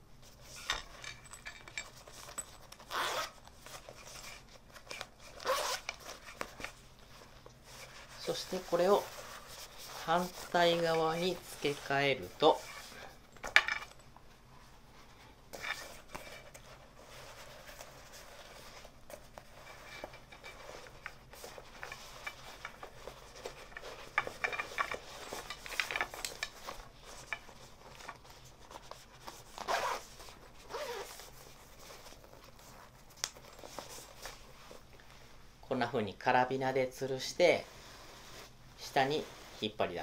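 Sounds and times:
fabric rustling: 0:00.2 - 0:35.6, 0:36.6 - 0:40.0
zipper rasps: 0:02.8 - 0:03.9, 0:04.9 - 0:06.3, 0:29.5 - 0:31.4.

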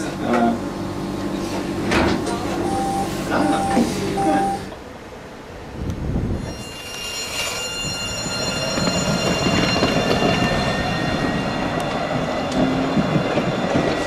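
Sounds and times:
tram wheels rumbling on track: 0:00.0 - 0:14.0
thin high whine: 0:06.4 - 0:12.0.

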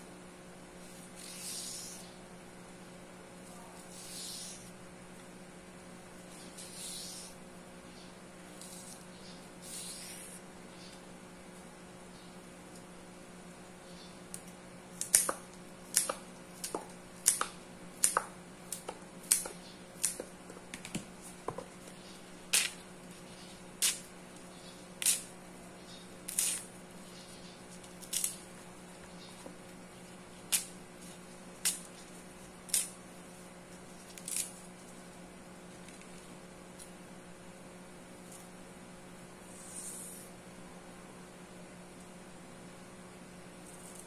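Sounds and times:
steady low hum: 0:00.0 - 0:44.0
leaf stalks being cut: 0:14.3 - 0:20.3, 0:21.2 - 0:24.1, 0:25.0 - 0:25.3, 0:26.2 - 0:33.1, 0:33.7 - 0:35.0.

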